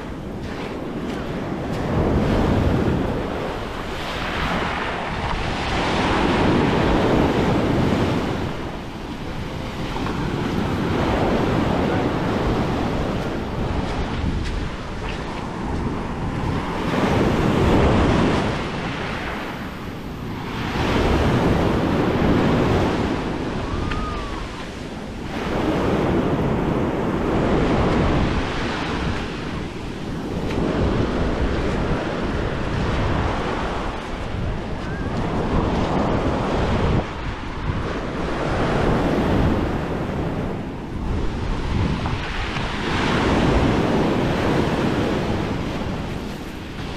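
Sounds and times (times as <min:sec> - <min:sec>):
small waves washing on beach: 0:00.0 - 0:46.9
wind on microphone: 0:00.0 - 0:46.9.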